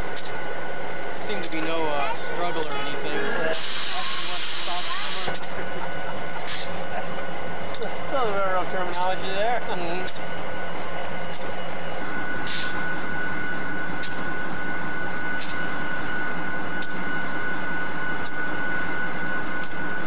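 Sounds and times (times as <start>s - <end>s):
diesel locomotive drone: 0.0s - 20.0s
thin steady whine: 0.0s - 20.0s.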